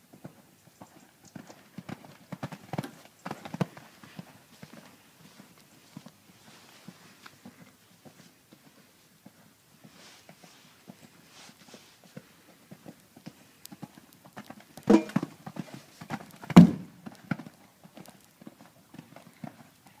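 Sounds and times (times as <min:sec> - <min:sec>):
horse hoofbeats on sand: 0:00.0 - 0:20.0
loud thuds of horse jumping: 0:16.5 - 0:17.0.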